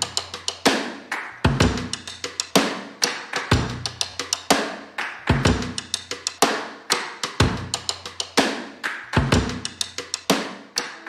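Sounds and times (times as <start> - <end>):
drum kit beat: 0.0 - 11.0
hi-hat and cymbal hits: 0.0 - 11.0
snare hits: 0.0 - 11.0
deep kick drum: 1.5 - 2.0, 3.5 - 3.9, 5.3 - 5.8, 7.4 - 7.8.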